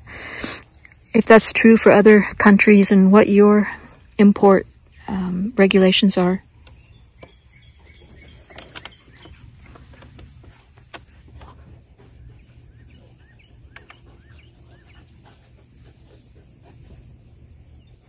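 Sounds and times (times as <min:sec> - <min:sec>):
bird chirping softly: 0:05.8 - 0:18.0.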